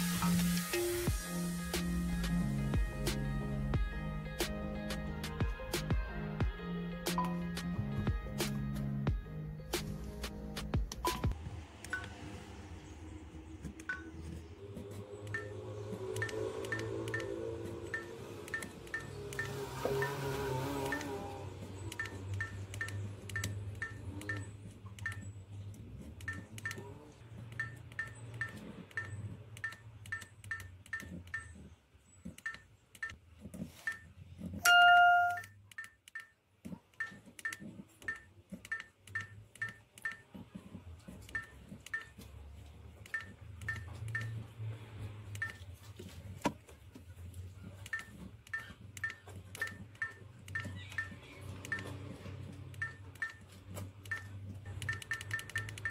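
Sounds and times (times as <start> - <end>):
lower electronic beep: 11.0 - 12.4, 15.2 - 21.2.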